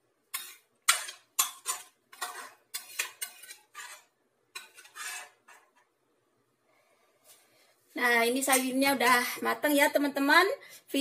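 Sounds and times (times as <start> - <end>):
utensil scraping steel pot: 0.3 - 5.9.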